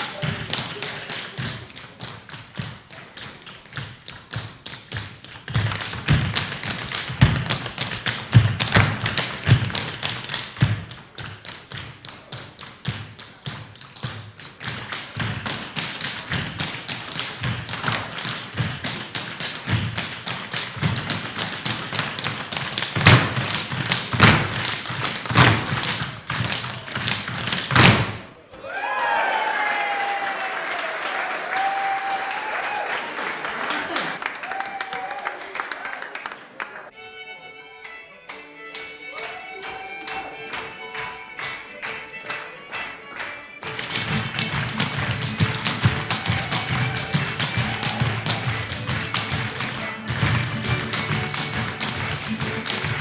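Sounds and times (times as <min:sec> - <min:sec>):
tap dancing on wooden floor: 0:00.2 - 0:28.2, 0:43.6 - 0:53.0
heavy foot stamps: 0:17.3 - 0:28.2.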